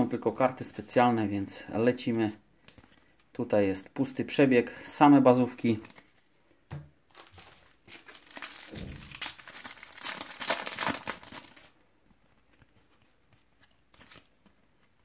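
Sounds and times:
foil pack crinkling and tearing: 7.1s - 11.8s.

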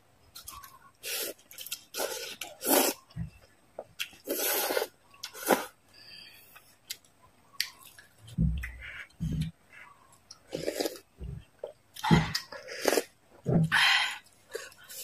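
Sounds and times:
wet chewing of noodles: 0.3s - 3.2s, 3.8s - 5.8s, 6.4s - 15.0s
slurping: 0.5s - 3.1s, 4.0s - 5.8s.

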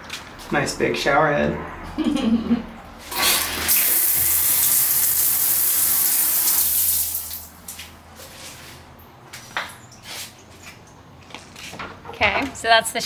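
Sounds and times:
shower spraying water: 3.1s - 7.6s.

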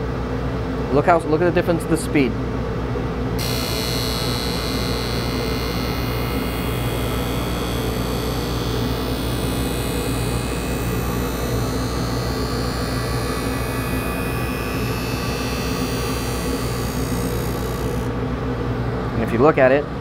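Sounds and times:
skate blade on grinding wheel: 3.4s - 18.1s
grinding wheel humming: 3.4s - 18.2s.

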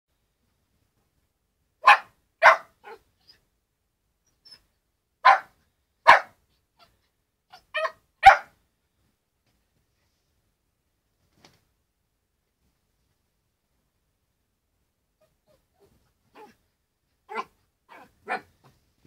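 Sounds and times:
puppy barking: 1.8s - 3.4s, 5.2s - 8.6s, 15.2s - 16.6s, 17.3s - 18.7s.

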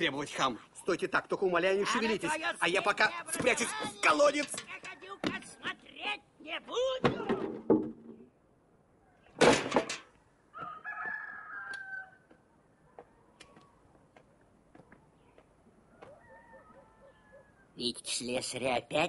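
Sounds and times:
rooster crowing: 10.5s - 12.4s, 15.9s - 17.8s.

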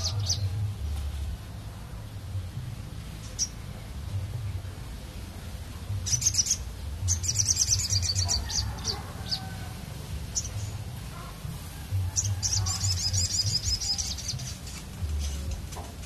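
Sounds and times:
songbird chirping: 0.0s - 16.0s.

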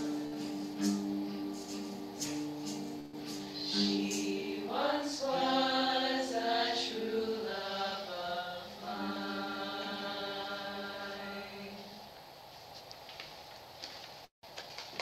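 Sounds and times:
women's choir singing: 3.4s - 12.1s.

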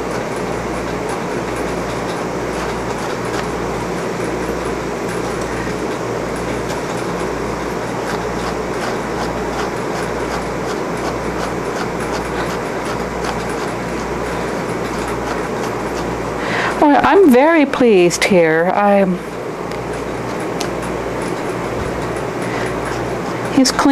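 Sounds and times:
motor humming: 0.0s - 23.9s
brush scratching through wool: 1.9s - 3.9s, 6.5s - 16.4s.

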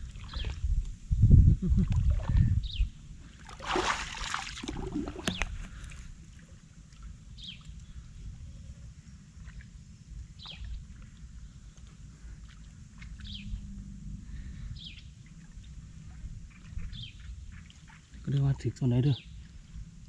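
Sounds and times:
steady low rumble: 0.0s - 20.0s
water sloshing and splashing: 3.3s - 7.8s, 15.2s - 18.3s
bird calls: 10.4s - 10.8s, 13.0s - 13.6s.

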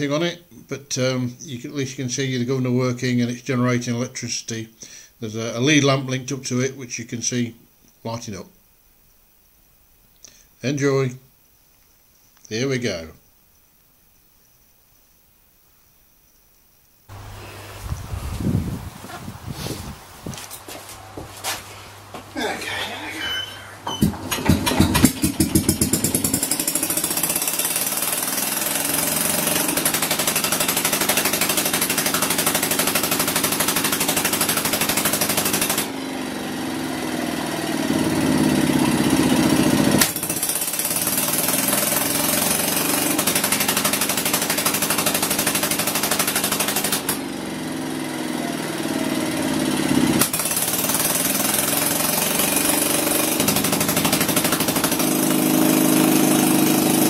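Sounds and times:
two-stroke engine running: 23.9s - 57.0s.

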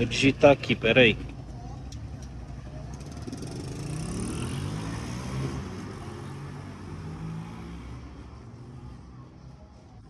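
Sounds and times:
vehicle driving past: 3.0s - 9.7s.

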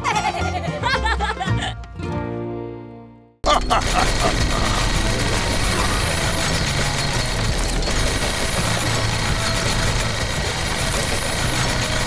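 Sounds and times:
tractor engine running: 3.4s - 12.0s.

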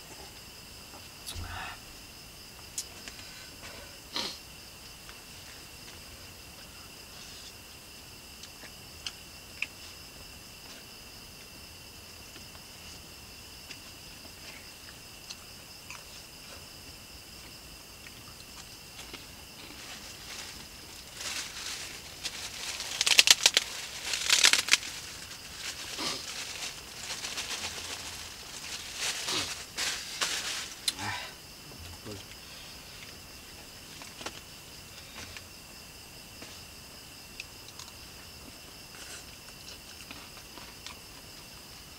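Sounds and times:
plastic bag crinkling: 19.8s - 30.9s.

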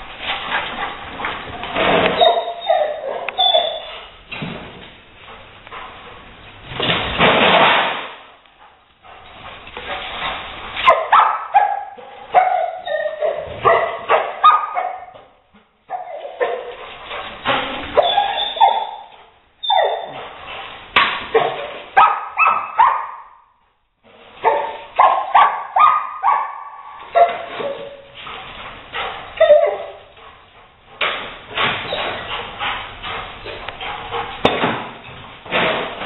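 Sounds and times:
dog barking: 2.2s - 3.8s, 10.9s - 15.2s, 15.9s - 16.7s, 18.0s - 19.1s, 21.3s - 23.4s, 24.4s - 27.8s, 29.4s - 30.0s.

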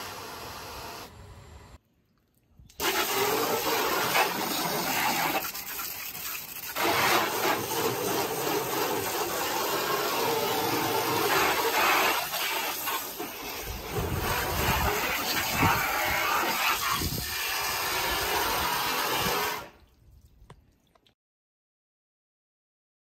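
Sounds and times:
water jet splashing on car: 2.8s - 19.7s.

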